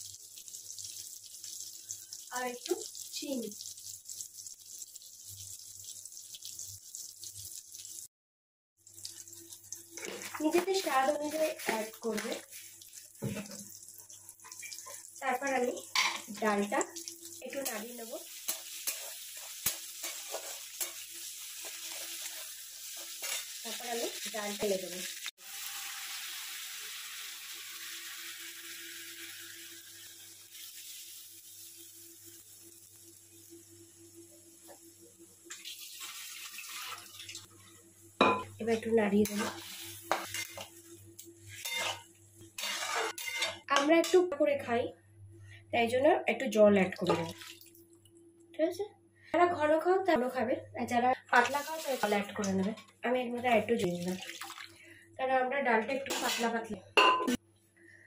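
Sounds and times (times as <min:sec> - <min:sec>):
food sizzling in hot oil: 0:00.0 - 0:08.1, 0:08.8 - 0:44.2, 0:51.3 - 0:52.7, 0:56.0 - 0:57.4.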